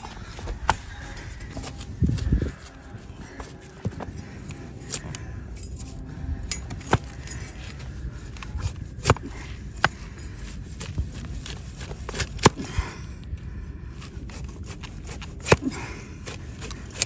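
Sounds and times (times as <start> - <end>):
blade paring hoof: 14.0 - 17.0.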